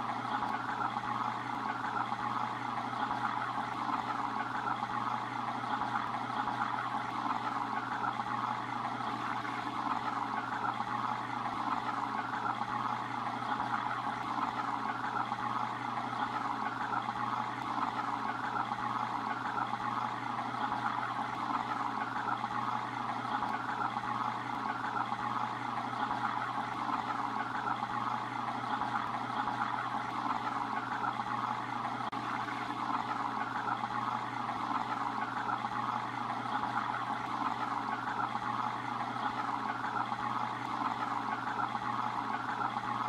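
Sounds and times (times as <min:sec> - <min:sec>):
aquarium filter water trickling: 0:00.0 - 0:43.0.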